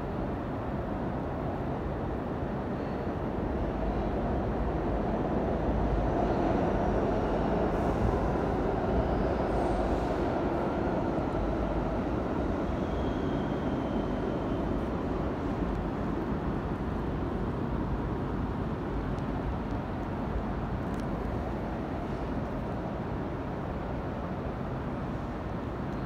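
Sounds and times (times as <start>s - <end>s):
subway train rumbling: 0.0s - 26.0s
faint high squeal: 12.4s - 14.8s.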